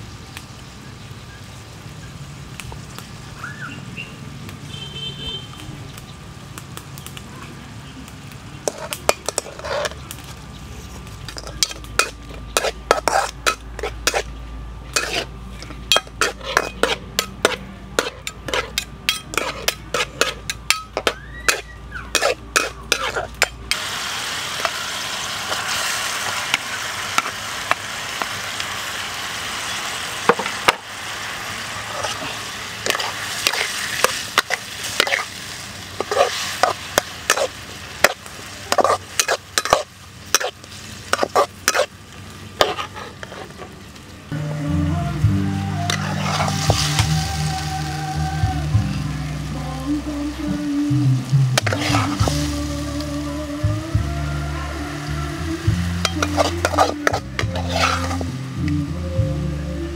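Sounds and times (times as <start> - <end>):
frying sizzle: 0.0 - 59.9
metal spatula scraping a wok: 8.6 - 10.1, 10.7 - 23.8, 31.8 - 41.9, 42.6 - 43.8, 45.9 - 47.3, 51.6 - 52.6, 56.0 - 58.4.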